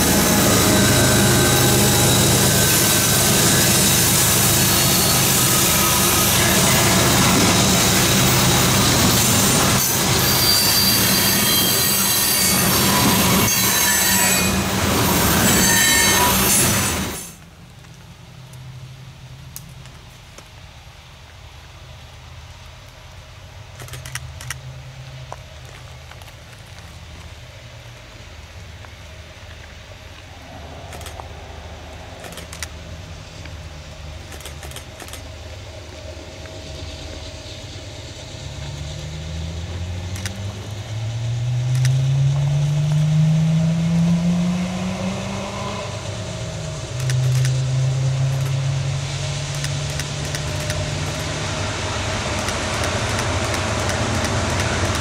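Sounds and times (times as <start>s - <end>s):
diesel locomotive engine drone: 0.0s - 55.0s.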